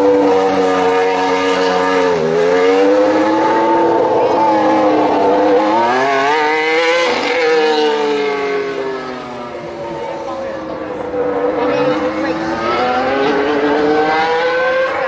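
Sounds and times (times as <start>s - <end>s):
racing car engine revving: 0.0s - 15.0s.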